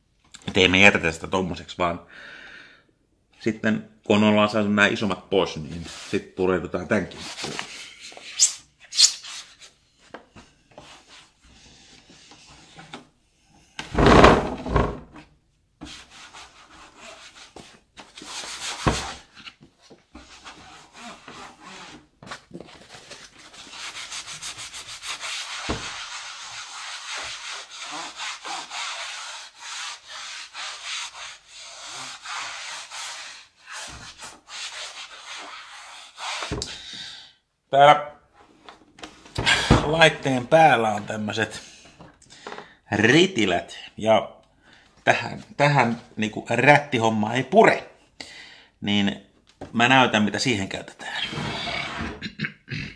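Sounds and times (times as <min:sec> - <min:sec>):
loud bump: 0:13.9 - 0:15.1
sponge scrubbing plastic: 0:23.4 - 0:36.6.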